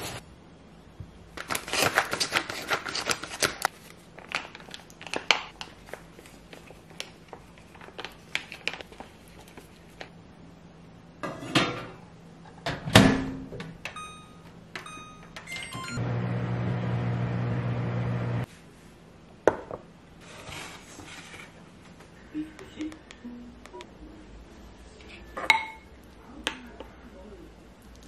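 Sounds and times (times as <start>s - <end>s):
short electronic beeps: 14.0s - 16.0s
dishes clattering: 25.4s - 25.9s.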